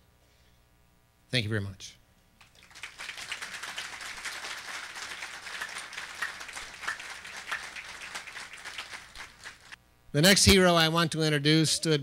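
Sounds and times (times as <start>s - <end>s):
audience applauding: 2.4s - 9.8s.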